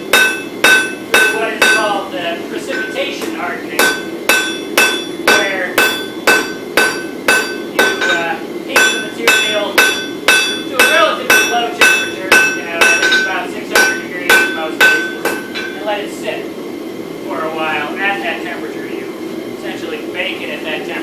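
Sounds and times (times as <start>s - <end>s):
hammer striking steel on anvil: 0.0s - 2.0s, 2.6s - 15.8s.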